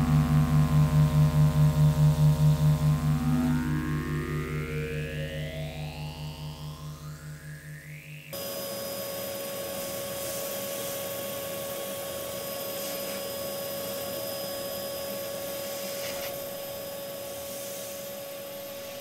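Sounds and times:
pulsing low synthesizer tone: 0:00.0 - 0:08.5
handheld vacuum cleaner running: 0:08.4 - 0:19.0.

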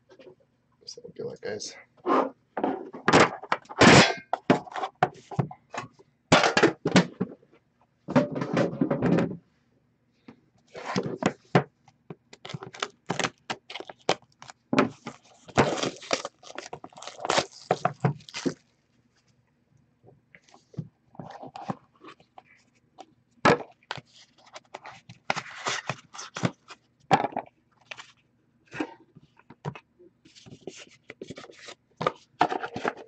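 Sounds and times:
metal tin lid clattering: 0:03.8 - 0:04.7.

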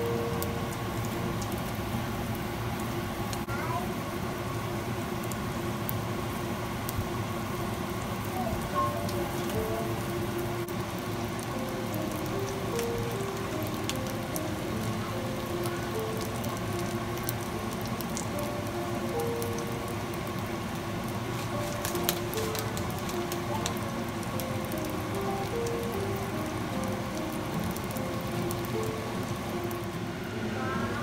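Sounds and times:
soft slow background music: 0:00.0 - 0:02.4, 0:08.6 - 0:31.0
oil sizzling in a pan: 0:00.0 - 0:31.0.

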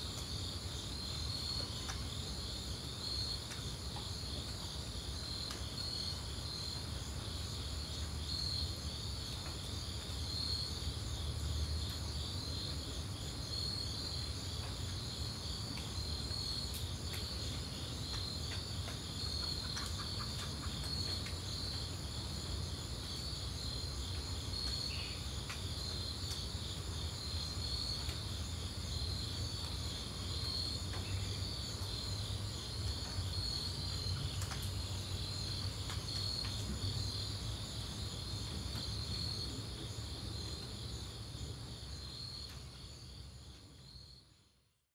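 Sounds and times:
insect chorus trilling: 0:00.0 - 0:44.2
faint ticks: 0:01.7 - 0:02.1, 0:05.4 - 0:05.7, 0:16.7 - 0:21.4, 0:24.6 - 0:26.5, 0:34.1 - 0:34.8, 0:35.5 - 0:36.8.

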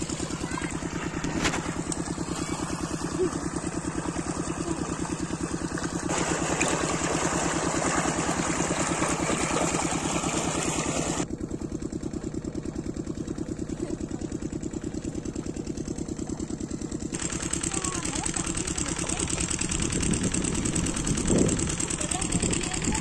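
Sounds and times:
water gushing: 0:00.0 - 0:11.2
diesel engine running: 0:00.0 - 0:23.0.

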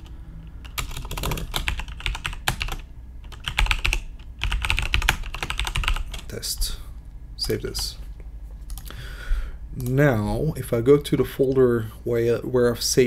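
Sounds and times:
keyboard typing: 0:00.0 - 0:06.3
steady low hum: 0:00.0 - 0:13.0.

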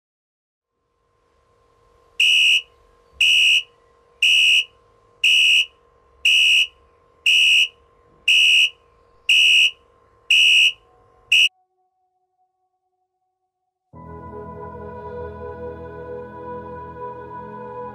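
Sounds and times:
phone alarm beeping: 0:09.3 - 0:11.5.

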